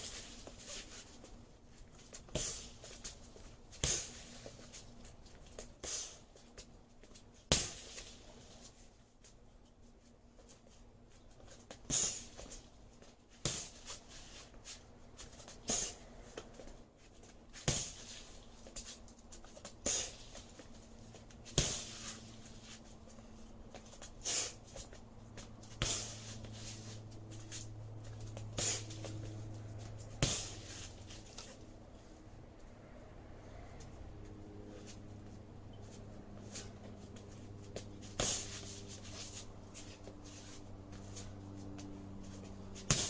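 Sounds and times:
low steady hum: 0.0 - 43.0
kicks slapping a punching ball: 2.1 - 3.1, 3.7 - 4.6, 7.5 - 8.1, 13.4 - 14.0, 17.6 - 18.8, 21.4 - 22.2, 23.7 - 26.3, 29.9 - 30.8, 36.7 - 38.8, 42.8 - 43.0.

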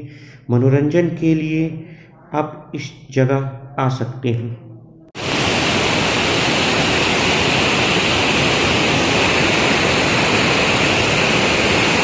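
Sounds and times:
water rushing over rocks: 5.2 - 12.0.

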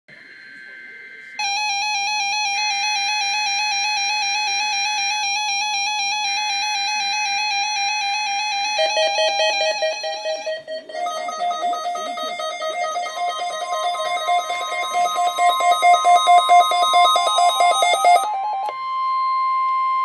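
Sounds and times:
weather radio alert tones: 7.3 - 18.4.

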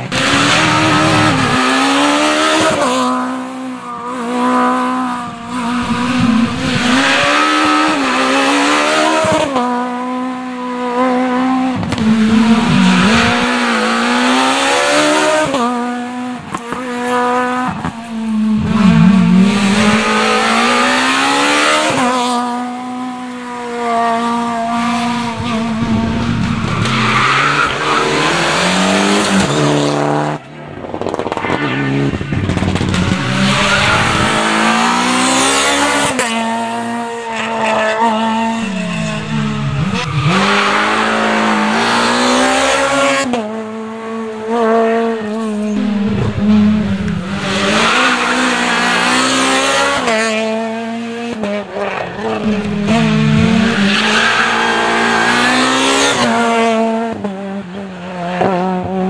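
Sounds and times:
rally car engines revving: 0.0 - 59.0.

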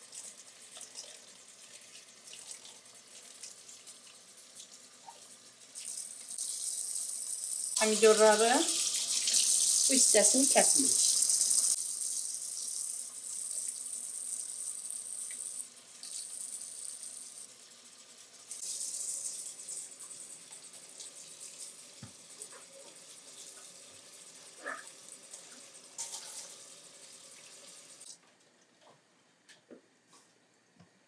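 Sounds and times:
tap water splashing in sink: 22.0 - 23.7.

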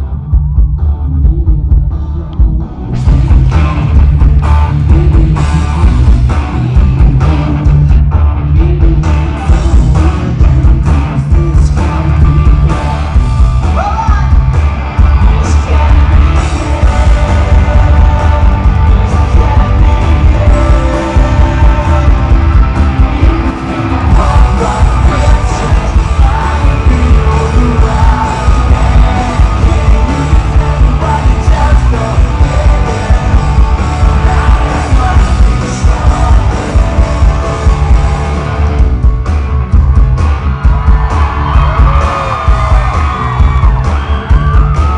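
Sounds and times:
live rock band playing: 0.0 - 44.9
person singing and shouting: 11.3 - 14.5, 15.2 - 38.4.

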